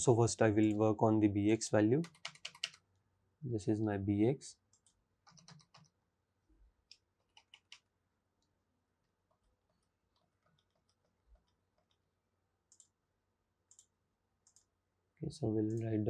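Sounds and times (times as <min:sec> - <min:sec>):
faint keyboard typing: 0:02.0 - 0:02.9, 0:04.6 - 0:06.0, 0:06.8 - 0:13.0, 0:13.6 - 0:14.8, 0:15.6 - 0:16.0.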